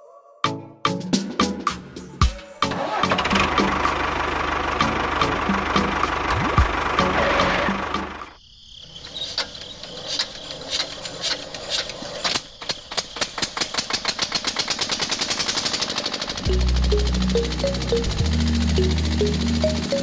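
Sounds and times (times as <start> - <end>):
background music: 0.0 - 8.4, 16.4 - 20.0
small stationary engine chugging: 9.6 - 20.0.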